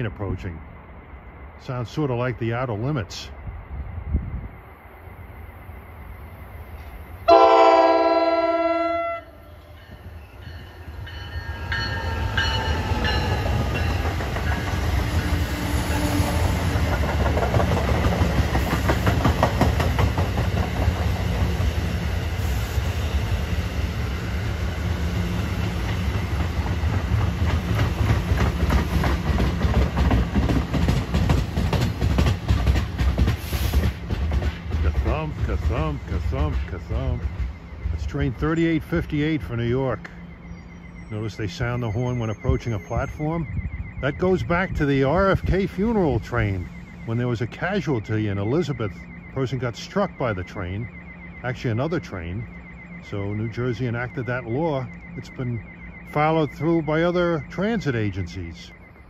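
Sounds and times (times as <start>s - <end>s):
train rumbling past: 0.0s - 59.0s
train horn chord: 7.3s - 9.8s
wheels clicking over rails: 11.8s - 22.1s, 25.6s - 40.2s.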